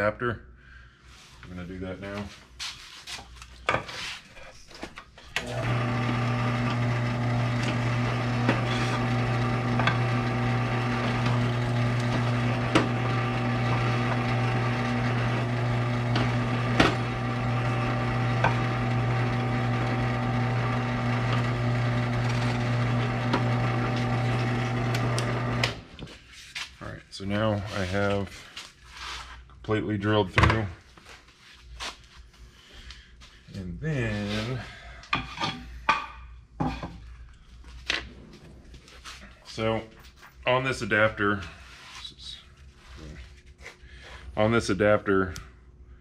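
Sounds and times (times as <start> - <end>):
drill press humming: 5.4 - 26.0.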